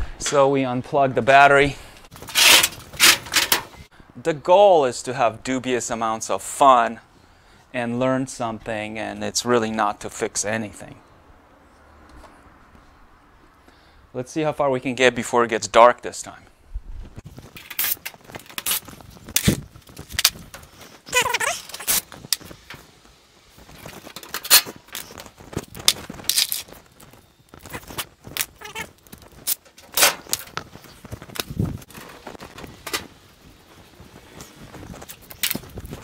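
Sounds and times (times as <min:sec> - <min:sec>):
tools clicking and clattering: 0:02.1 - 0:03.8, 0:29.5 - 0:30.6.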